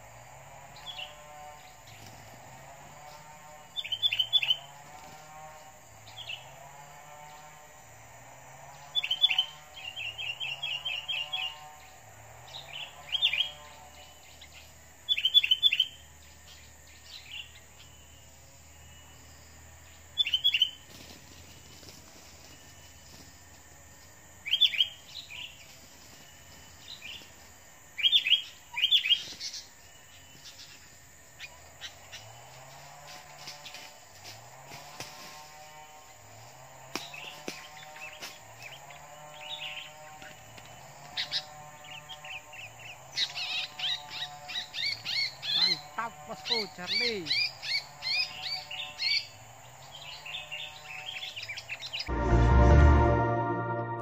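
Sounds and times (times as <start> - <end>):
birds chirping: 3.0 - 5.3, 8.7 - 23.2, 24.4 - 32.9, 37.0 - 52.1.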